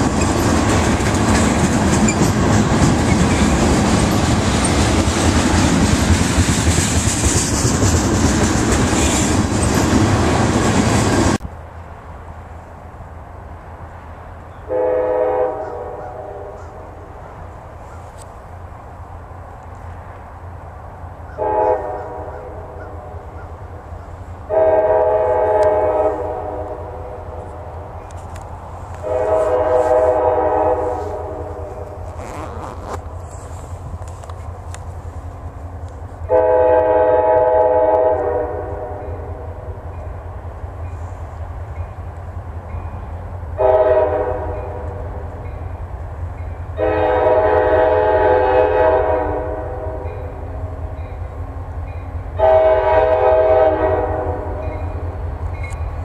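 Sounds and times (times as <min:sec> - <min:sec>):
locomotive horn blasts: 0:14.7 - 0:16.8, 0:21.4 - 0:23.3, 0:24.5 - 0:27.3, 0:29.0 - 0:32.8, 0:36.3 - 0:39.6, 0:43.6 - 0:45.0, 0:46.8 - 0:50.3, 0:52.4 - 0:54.8.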